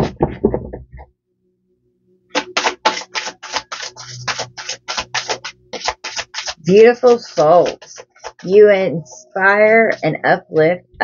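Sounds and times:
cards being shuffled: 2.3s - 8.6s.

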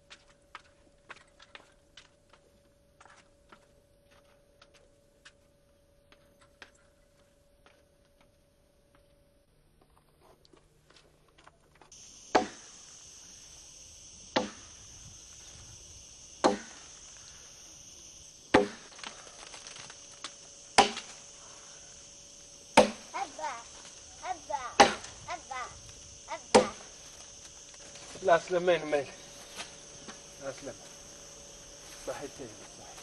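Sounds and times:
insects buzzing: 11.8s - 33.0s
axe chopping log: 12.3s - 12.7s, 14.4s - 14.6s, 16.4s - 16.8s, 18.5s - 18.9s, 20.8s - 21.2s, 22.8s - 23.1s, 24.8s - 25.1s, 26.5s - 26.8s.

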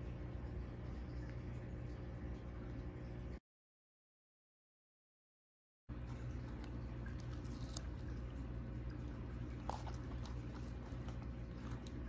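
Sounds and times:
steady low hum: 0.0s - 3.4s, 5.9s - 12.0s
tortoise crunching strawberry: 5.9s - 12.0s.

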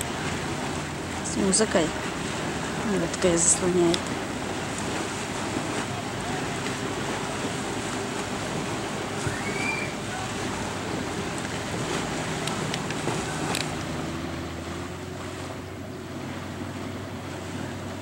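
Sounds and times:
boat motor running: 0.0s - 18.0s
water noise: 0.0s - 18.0s
wind: 0.0s - 18.0s
high rising and falling call: 9.2s - 10.0s.

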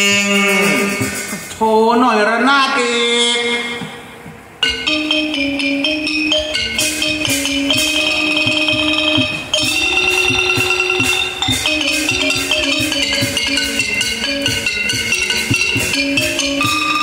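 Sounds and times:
drum strokes: 0.0s - 1.6s, 3.7s - 17.0s
xylophone melody: 4.6s - 17.0s
cymbal strokes: 6.7s - 17.0s.

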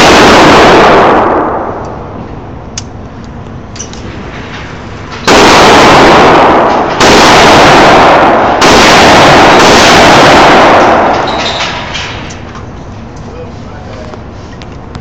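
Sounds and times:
rifle shots echoing indoors: 0.0s - 1.8s, 5.2s - 12.3s.

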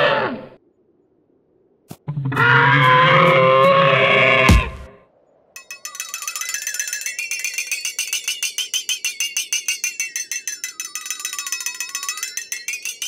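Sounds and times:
tinkling bell-like strikes: 5.6s - 13.0s
wavering tone: 5.6s - 13.0s.

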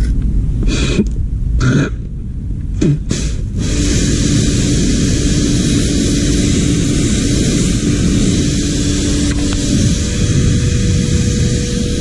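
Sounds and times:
hose jet hissing: 2.8s - 12.0s
motor hum: 3.1s - 12.0s.

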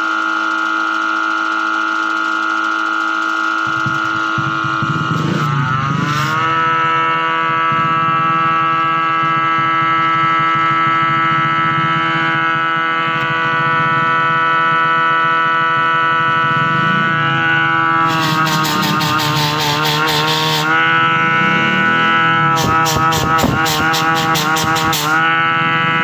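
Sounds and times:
supercharger blower whine: 0.0s - 26.0s.

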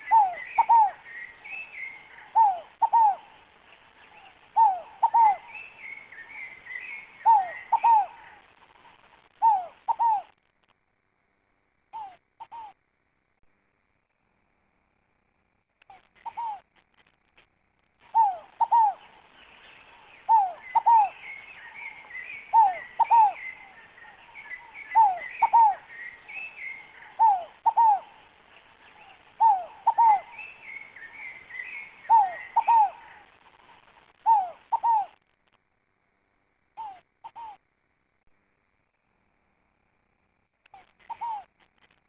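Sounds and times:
dove cooing: 0.0s - 10.4s, 11.9s - 12.8s, 15.9s - 16.7s, 18.0s - 19.3s, 19.9s - 35.2s, 36.8s - 37.6s, 40.7s - 41.6s
small bird twittering chirps: 18.1s - 33.2s.

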